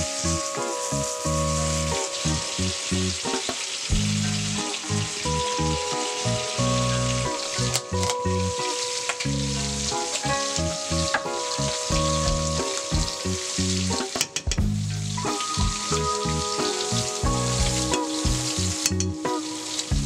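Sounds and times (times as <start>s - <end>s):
background music: 0.0s - 20.0s
beans sizzling in a frying pan: 0.0s - 20.0s.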